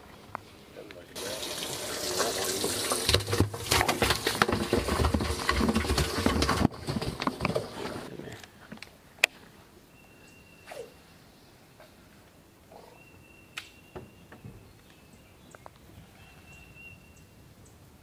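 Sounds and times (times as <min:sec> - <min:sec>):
water rushing and splashing: 0:01.2 - 0:03.4.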